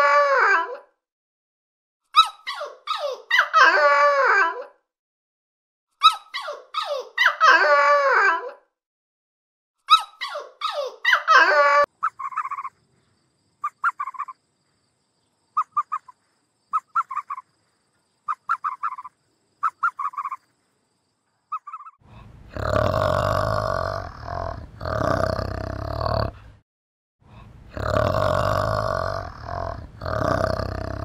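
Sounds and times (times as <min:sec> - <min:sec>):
dogs whining: 0:09.9 - 0:12.6
ape grunting calls: 0:22.2 - 0:26.6, 0:27.5 - 0:31.0.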